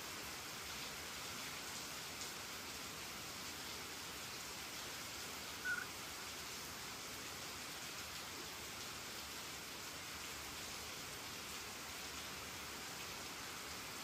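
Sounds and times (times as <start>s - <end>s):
rain falling: 0.0s - 14.0s
short high call: 5.6s - 5.9s.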